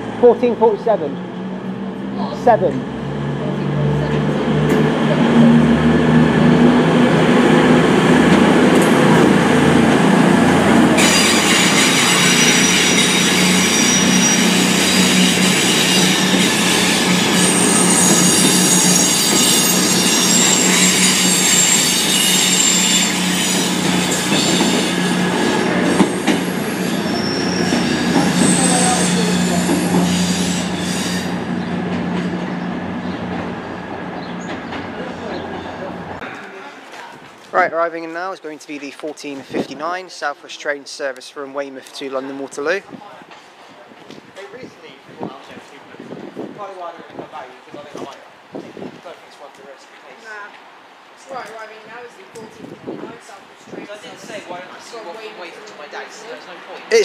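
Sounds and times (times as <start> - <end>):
train diesel engines droning: 0.0 - 37.0
train wheel squeal: 11.0 - 32.3.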